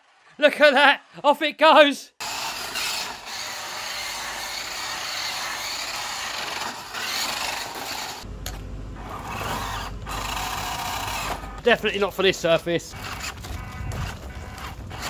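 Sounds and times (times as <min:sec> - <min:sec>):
toy truck crawling over gravel: 0:02.2 - 0:08.3, 0:09.0 - 0:15.0
toy truck electric motor running: 0:02.2 - 0:08.3, 0:09.0 - 0:11.6, 0:12.9 - 0:15.0.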